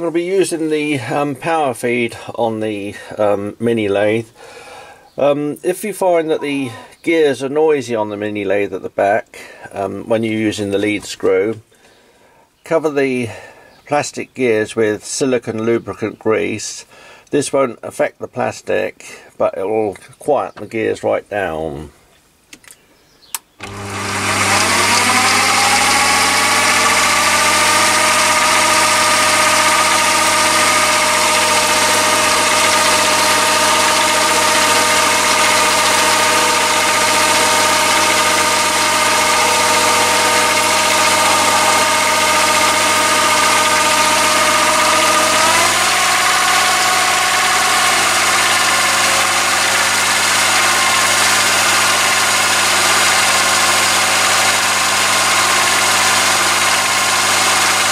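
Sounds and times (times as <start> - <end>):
lathe motor whining: 23.6 - 57.9.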